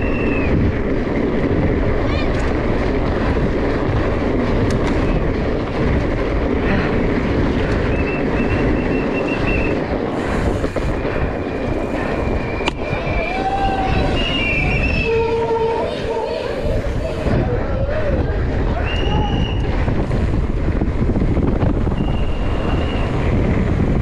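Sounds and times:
bike rattling: 0.0s - 24.0s
wind rush: 0.0s - 24.0s
high-pitched squeals: 12.0s - 19.8s.

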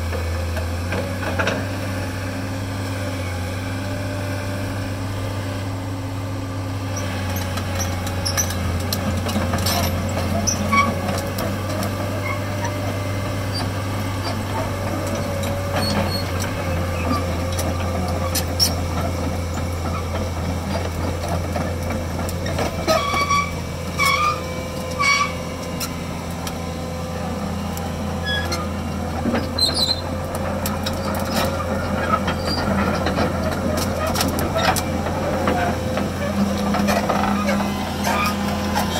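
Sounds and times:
excavator diesel engine running: 0.0s - 38.9s
tracks squealing: 7.0s - 20.9s, 22.4s - 26.1s, 28.1s - 38.9s
steel tracks clanking: 7.0s - 38.9s.

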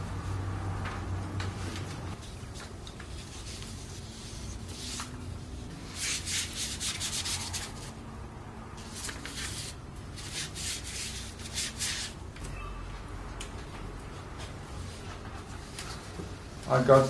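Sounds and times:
brush rubbing on paper: 3.1s - 5.1s, 5.9s - 7.9s.

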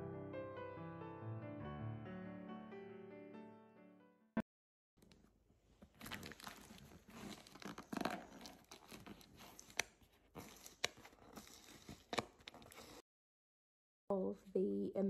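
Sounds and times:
paper bags rustling and crinkling: 5.9s - 13.0s.

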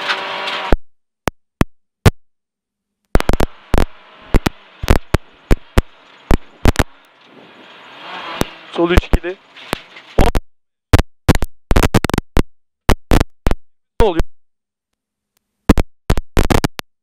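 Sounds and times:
car engine and road noise: 0.0s - 0.8s, 3.2s - 10.3s.

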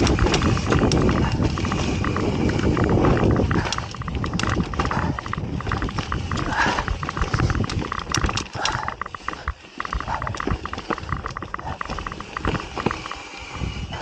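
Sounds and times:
tyres crunching over stones: 0.0s - 13.3s
bike clicking and rattling: 0.0s - 14.0s
wind on microphone: 0.0s - 14.0s.

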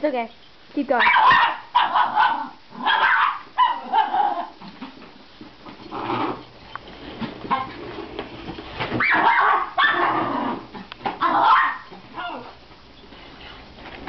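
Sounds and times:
dog barking: 1.0s - 4.5s, 9.0s - 10.2s, 11.2s - 12.5s.

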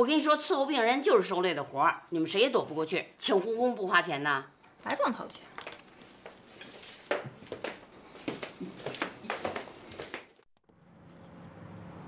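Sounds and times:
car engine and road noise: 10.6s - 12.0s.

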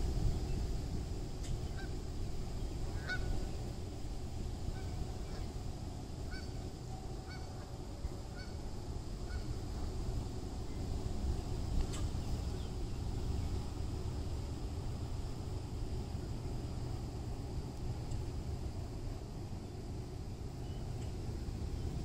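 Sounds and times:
geese honking: 2.9s - 3.5s, 4.7s - 5.6s, 6.3s - 6.6s, 7.2s - 8.6s.

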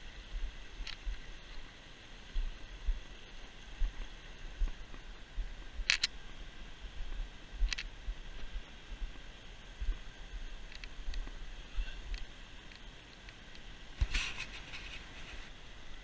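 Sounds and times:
wind rumble on microphone: 0.0s - 12.8s
faint steady hiss: 0.0s - 16.0s
sharp clicks: 5.8s - 6.2s
microphone handling noise: 14.0s - 15.5s.

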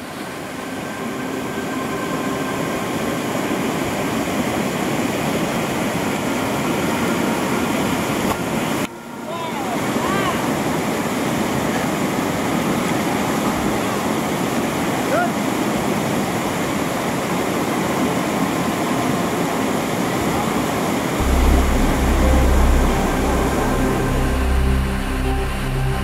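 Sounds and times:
whitewater rapid roaring: 0.0s - 26.0s
music with deep bass: 21.2s - 26.0s.

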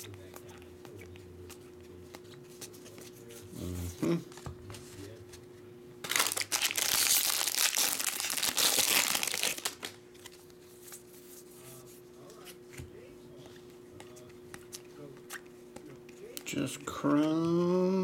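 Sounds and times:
foil wrapper tearing and crinkling: 6.0s - 10.0s.

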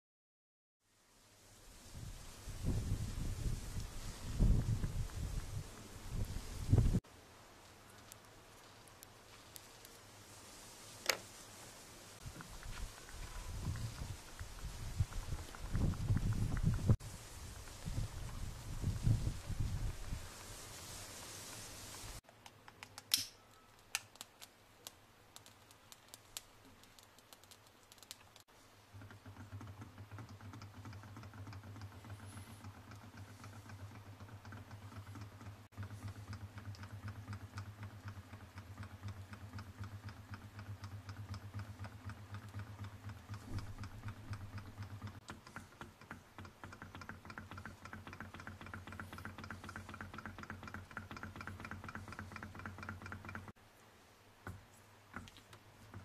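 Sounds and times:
model engine rapid clicking: 12.2s - 22.2s, 25.4s - 53.6s, 55.1s - 56.0s.

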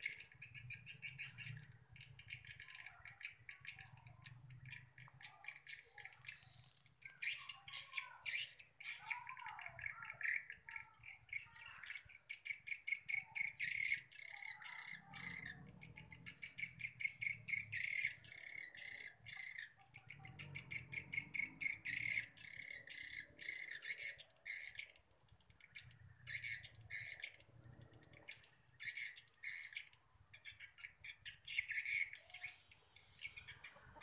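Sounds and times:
swiftlets chirping in trills: 31.6s - 34.0s.

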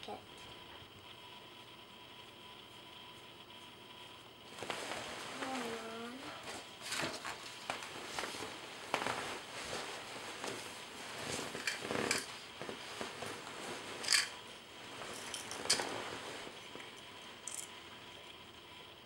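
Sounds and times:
small objects rustling and scraping: 6.8s - 17.7s.

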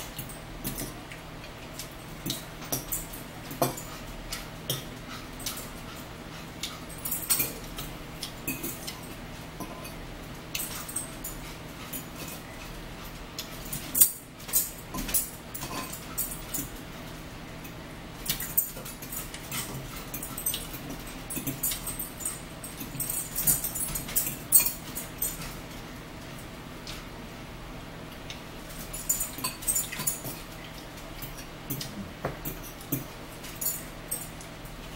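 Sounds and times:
forks scraping and tapping bowls: 1.8s - 6.0s, 6.6s - 12.8s, 13.4s - 16.8s, 17.6s - 25.6s, 28.7s - 34.4s.

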